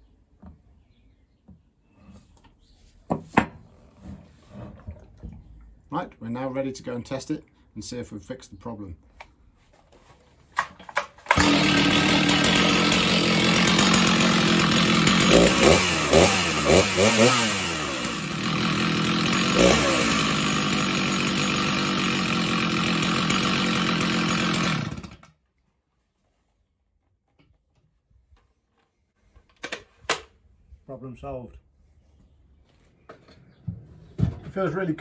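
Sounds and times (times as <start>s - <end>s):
chainsaw idling and revving: 11.3s - 25.3s.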